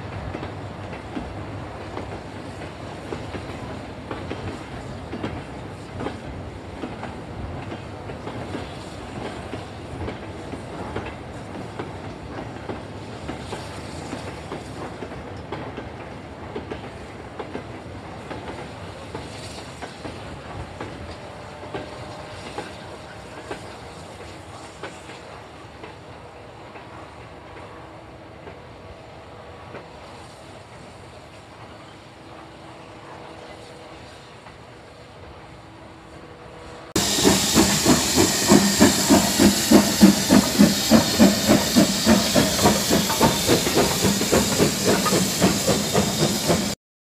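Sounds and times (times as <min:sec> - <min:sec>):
train rumble: 0:00.0 - 0:46.8
train wheels clattering: 0:37.0 - 0:46.8.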